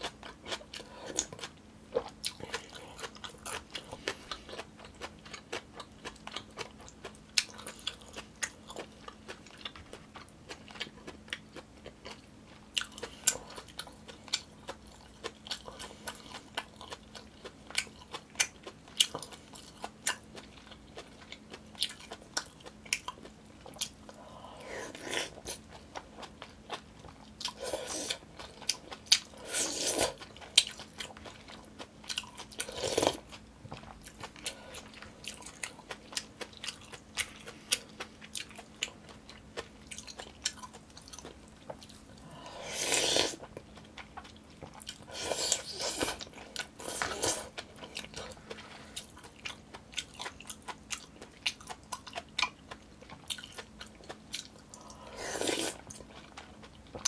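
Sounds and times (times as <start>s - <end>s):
wet chewing: 0.0s - 57.0s
slurping: 42.4s - 43.5s, 55.0s - 55.8s.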